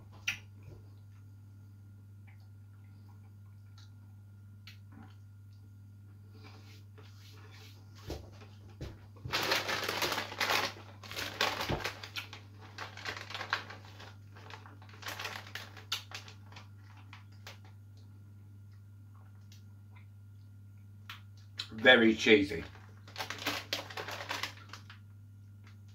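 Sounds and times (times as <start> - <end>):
steady low hum: 0.0 - 25.9
tortilla chips being chewed: 9.3 - 20.1, 22.6 - 25.0.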